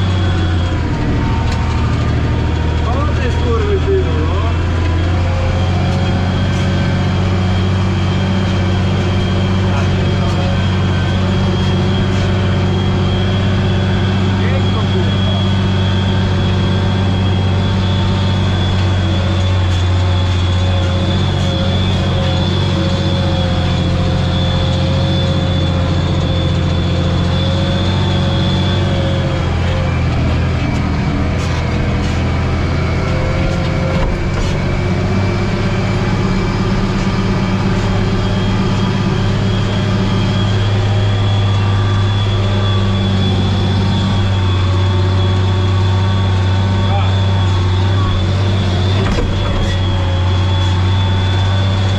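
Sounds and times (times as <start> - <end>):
steady high whine: 0.0 - 51.9
tractor engine running under load: 0.0 - 51.9.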